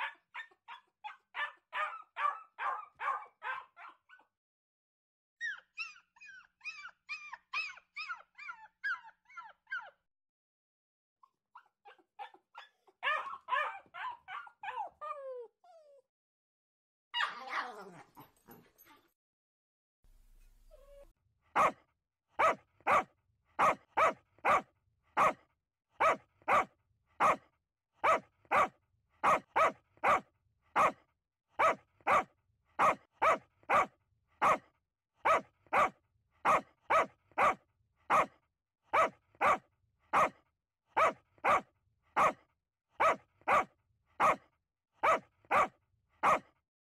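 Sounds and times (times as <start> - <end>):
dog barking: 0.0 - 4.3, 11.8 - 14.9, 17.2 - 18.6, 20.7 - 21.8, 22.4 - 31.0, 31.6 - 46.6.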